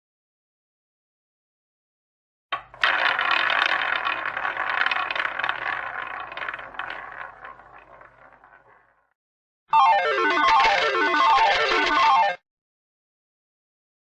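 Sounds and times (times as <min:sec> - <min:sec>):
roulette ball rattling and clicking: 0:02.6 - 0:09.1.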